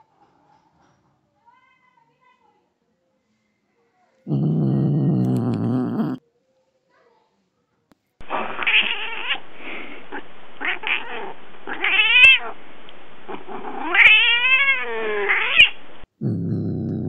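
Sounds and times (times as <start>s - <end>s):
young cat yowling: 8.5s - 9.4s, 10.6s - 12.5s, 13.3s - 15.8s.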